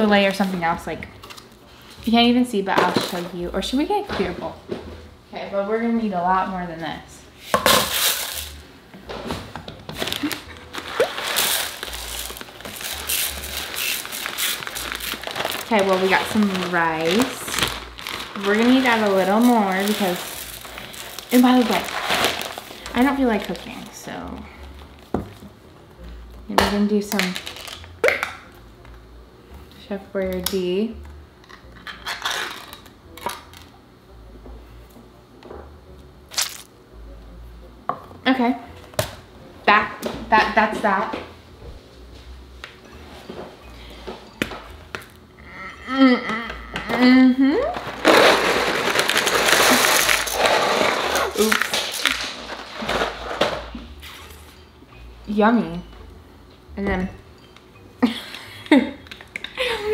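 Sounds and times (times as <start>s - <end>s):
plastic bag crinkling: 10.0s - 25.0s, 27.2s - 28.0s, 36.3s - 36.7s, 47.8s - 53.5s.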